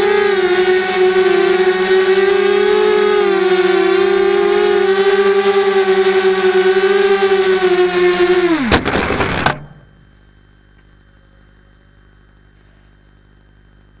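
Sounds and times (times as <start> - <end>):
drone motors whining: 0.0 - 10.1
drone landing knock and clatter: 8.6 - 10.1.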